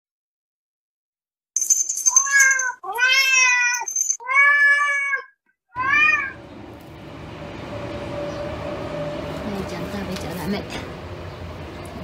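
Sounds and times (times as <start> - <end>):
cat meowing: 2.2 - 6.4.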